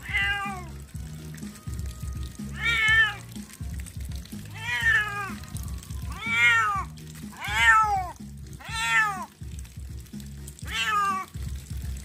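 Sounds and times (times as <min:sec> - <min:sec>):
cat meowing: 0:00.0 - 0:00.8, 0:02.5 - 0:03.3, 0:04.5 - 0:05.4, 0:06.0 - 0:09.4, 0:10.6 - 0:11.4.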